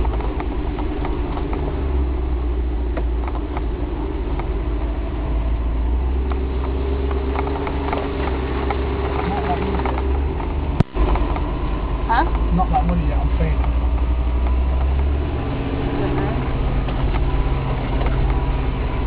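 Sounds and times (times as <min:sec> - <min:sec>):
engine running at low revs: 0:00.0 - 0:19.0
small knocks and rattles: 0:06.2 - 0:12.9.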